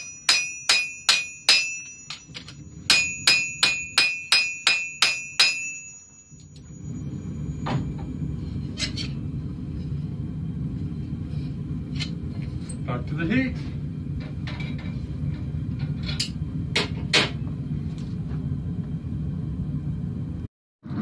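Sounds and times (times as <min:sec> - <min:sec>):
hammer ringing on anvil: 0:00.0 - 0:06.6
low rumble: 0:06.6 - 0:21.0.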